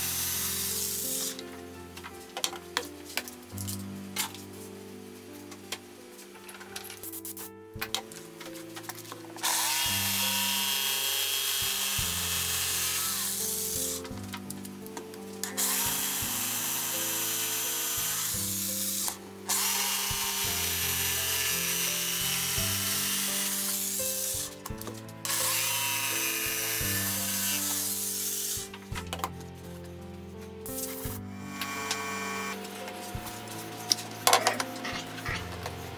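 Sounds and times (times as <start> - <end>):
electric jigsaw cutting wood: 0.0 - 1.4, 9.4 - 14.1, 15.4 - 24.6, 25.2 - 28.7, 31.3 - 35.5
background music: 0.0 - 35.9.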